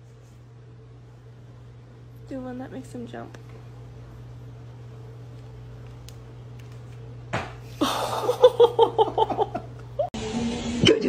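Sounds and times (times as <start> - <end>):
low room hum: 0.0 - 11.0
person laughing: 7.7 - 10.1.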